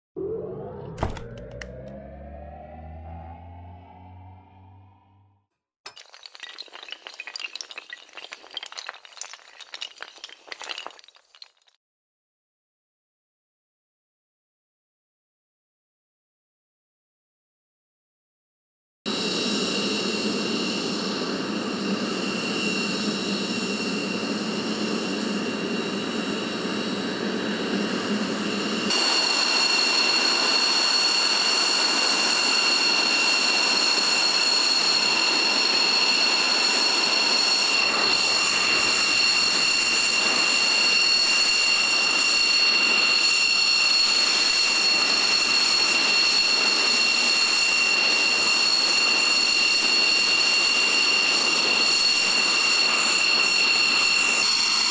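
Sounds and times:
jet engine idling whine: 0:00.2 - 0:05.3, 0:19.1 - 0:54.9
low rumble: 0:00.2 - 0:05.4.

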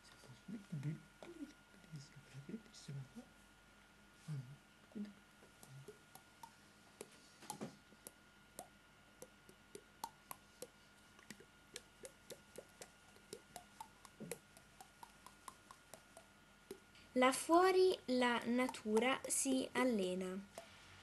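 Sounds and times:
faint steady hum: 0:00.0 - 0:21.0
small clicks and plops: 0:08.6 - 0:16.9, 0:18.6 - 0:19.5.

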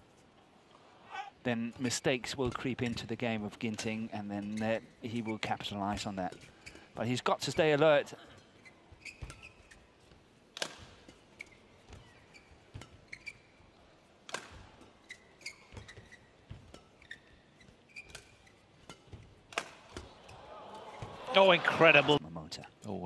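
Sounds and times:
shoes squeaking on court: 0:01.8 - 0:21.5
racket hitting shuttlecock: 0:10.6 - 0:13.4, 0:14.2 - 0:17.2, 0:17.9 - 0:21.1.

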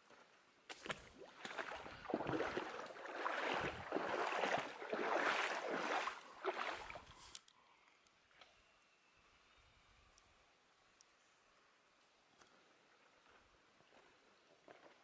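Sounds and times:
water splashing and sloshing: 0:00.7 - 0:07.4.

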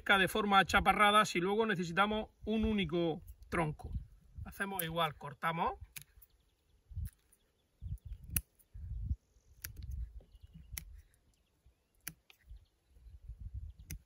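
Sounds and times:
scissors snipping: 0:05.9 - 0:06.3, 0:08.1 - 0:08.7, 0:09.5 - 0:11.2, 0:11.9 - 0:12.5.

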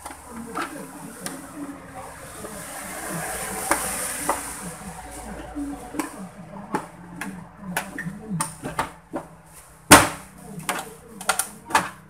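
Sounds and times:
plastic clicks and knocks: 0:09.9 - 0:12.0.

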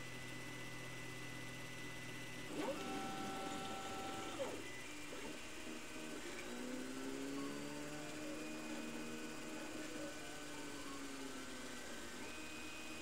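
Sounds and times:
stepper motors whining: 0:02.4 - 0:12.8.

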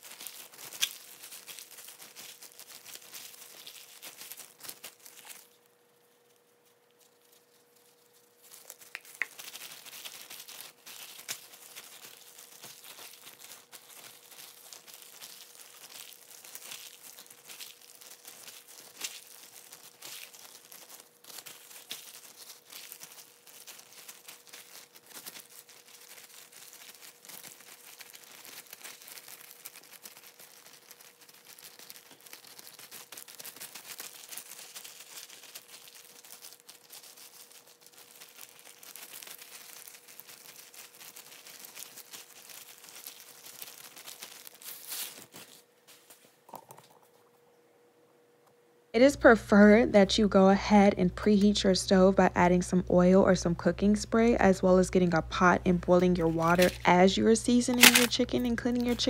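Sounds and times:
plastic gloves crinkling: 0:00.0 - 0:47.4, 0:49.0 - 0:59.0.

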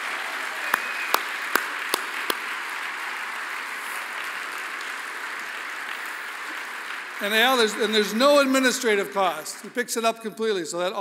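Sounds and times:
audience applauding: 0:00.0 - 0:09.8
close single claps: 0:00.6 - 0:02.5.

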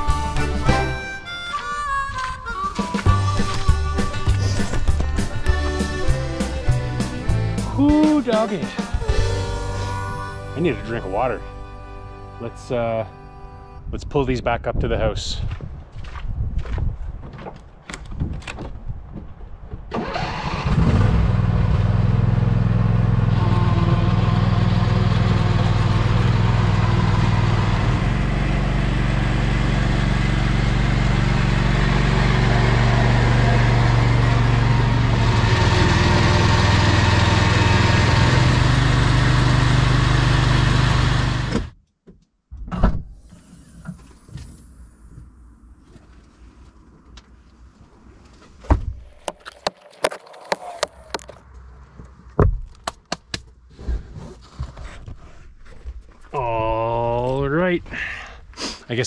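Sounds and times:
lawn tractor engine running: 0:19.9 - 0:41.7.

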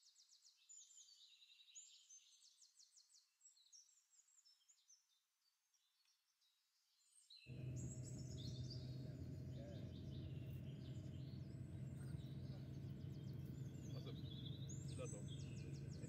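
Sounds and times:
birds chirping: 0:07.5 - 0:16.0
steady low hum: 0:07.5 - 0:16.0.

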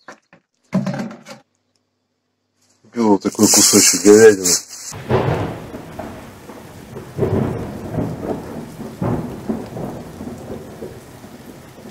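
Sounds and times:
rain falling: 0:03.2 - 0:11.9
thunder rolling: 0:05.0 - 0:11.9.

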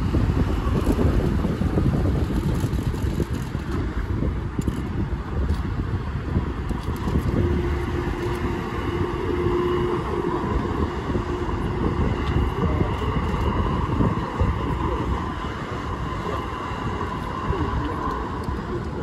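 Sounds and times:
train rumbling past: 0:00.0 - 0:19.0
wind buffeting microphone: 0:00.0 - 0:19.0
steady hum tone: 0:06.3 - 0:19.0.

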